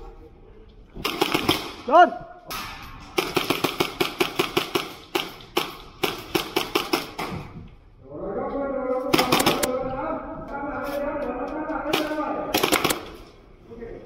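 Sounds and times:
airsoft guns firing: 1.0 - 7.4, 9.1 - 9.7, 11.9 - 13.3.

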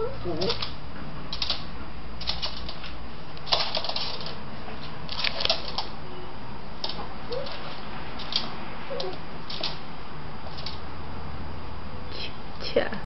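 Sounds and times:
claws clicking on hardwood floor: 0.4 - 4.4, 5.1 - 5.9, 6.8 - 9.8, 10.4 - 10.8.

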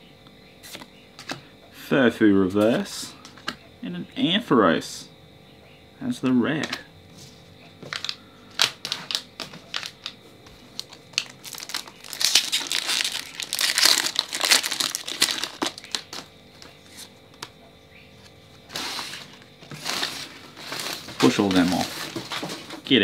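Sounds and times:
foil wrapper crinkling: 7.8 - 17.1, 18.6 - 23.0.

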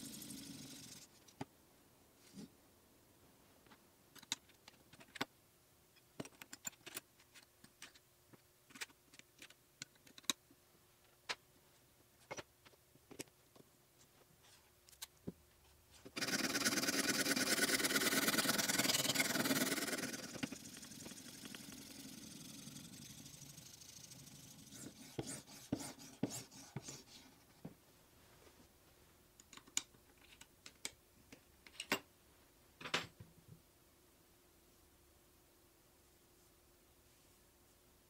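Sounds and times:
sharpening stone rasping on blade: 24.2 - 27.1.

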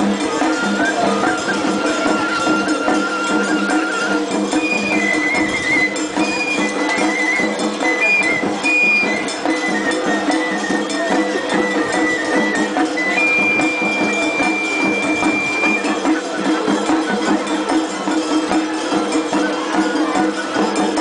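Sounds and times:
metal percussion clanking: 0.0 - 21.0
transverse flutes playing melody: 0.1 - 16.2.

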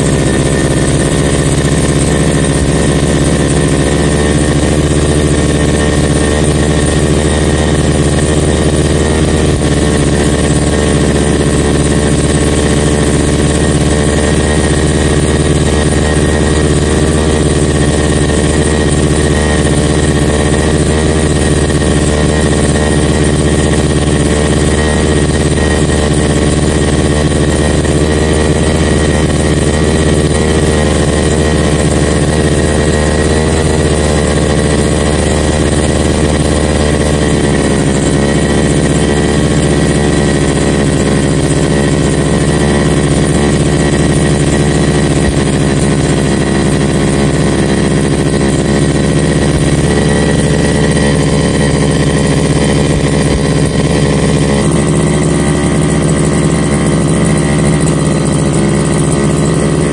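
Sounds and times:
brush cutter engine running: 0.0 - 59.9.

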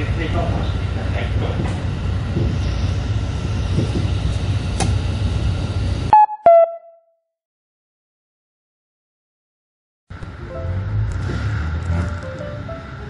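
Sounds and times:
diesel train running rumble: 0.0 - 6.1, 10.1 - 13.0.

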